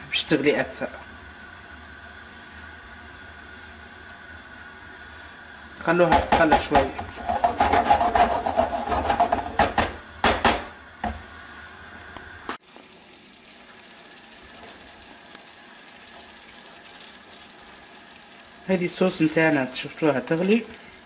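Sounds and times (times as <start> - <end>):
sauce sizzling: 0.0 - 21.0
knock: 6.1 - 8.3, 8.9 - 11.2
spatula scraping frying pan: 7.1 - 9.6.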